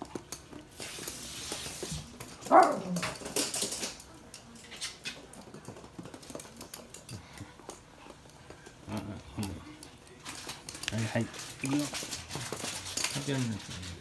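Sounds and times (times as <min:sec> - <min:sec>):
dog claws on hard floor: 0:00.0 - 0:14.0
dog barking: 0:02.5 - 0:03.0.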